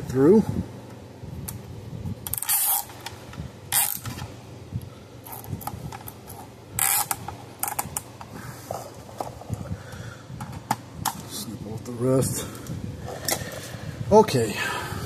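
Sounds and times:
zip tie ratcheting: 0:02.2 - 0:04.3, 0:05.2 - 0:08.1.

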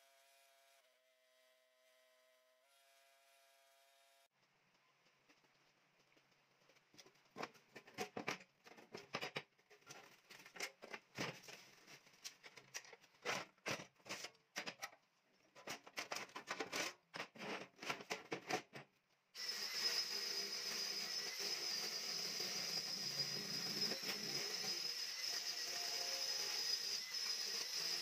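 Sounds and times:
angle grinder grinding steel: 0:19.4 - 0:28.0.

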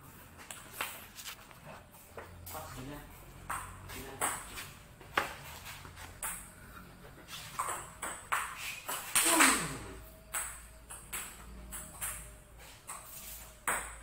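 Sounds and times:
ball bouncing on table: 0:03.4 - 0:05.3, 0:07.5 - 0:14.0
ping pong ball clicking off bats: 0:03.4 - 0:05.3, 0:06.2 - 0:06.5, 0:07.4 - 0:14.0.

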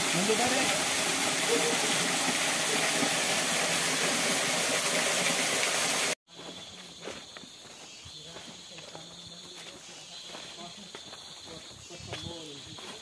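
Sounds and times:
shallow stream: 0:00.0 - 0:06.2
waterfall rushing: 0:00.0 - 0:06.2
footsteps on stones: 0:06.3 - 0:13.0.

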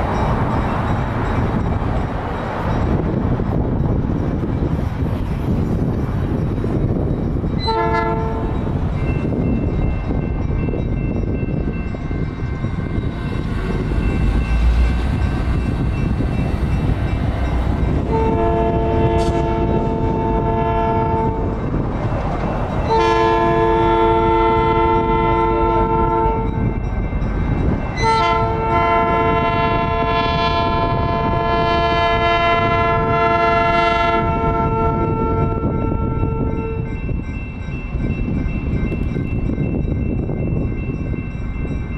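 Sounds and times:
locomotive horn chord blasts: 0:07.6 - 0:08.7, 0:17.9 - 0:21.5, 0:22.9 - 0:26.6, 0:28.0 - 0:36.9.

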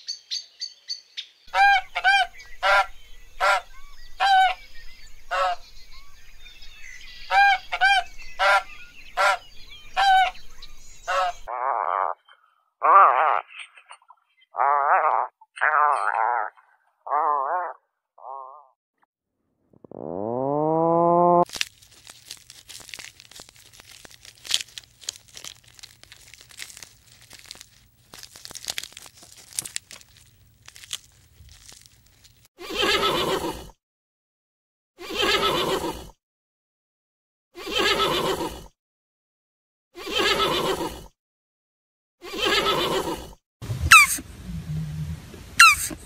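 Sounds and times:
animal call rising in pitch: 0:19.7 - 0:21.4, 0:43.7 - 0:45.9.

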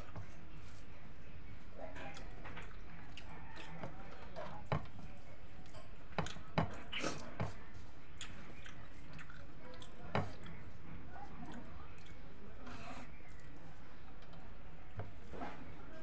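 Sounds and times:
fingers squishing rice: 0:00.0 - 0:13.9.

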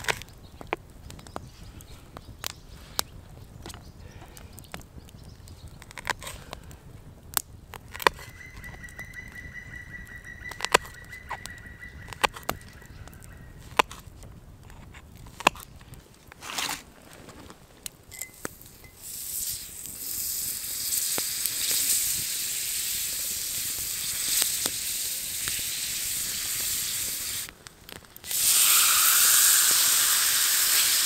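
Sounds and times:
high whistling tone: 0:08.1 - 0:13.6.

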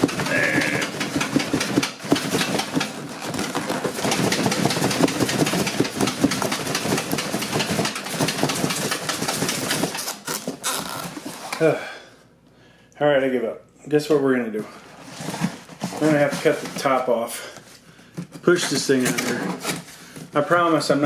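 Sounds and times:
cardboard and styrofoam scraping: 0:00.0 - 0:11.7, 0:14.7 - 0:17.8, 0:18.4 - 0:21.0.

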